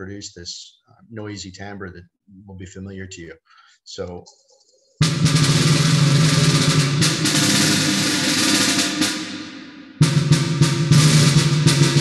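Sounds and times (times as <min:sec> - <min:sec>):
synthesized snare drum strikes: 0:05.0 - 0:12.0.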